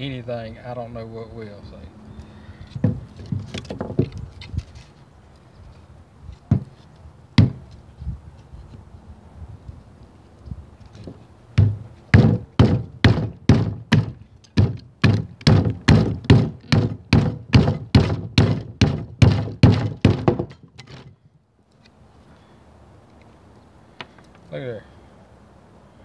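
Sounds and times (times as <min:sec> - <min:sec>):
baton thunking on knife spine: 0:06.5 - 0:06.8, 0:07.4 - 0:07.7, 0:11.6 - 0:21.2.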